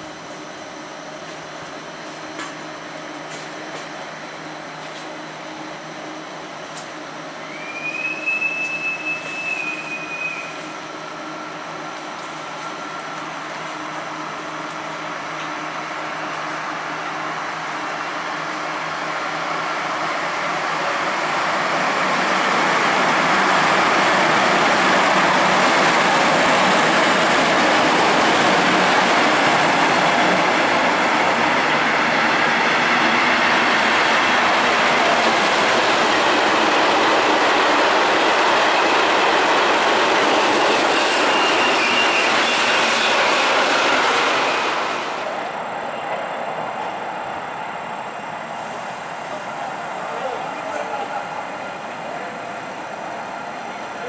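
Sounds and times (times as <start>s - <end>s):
train wheels rushing on rail: 0.0s - 54.0s.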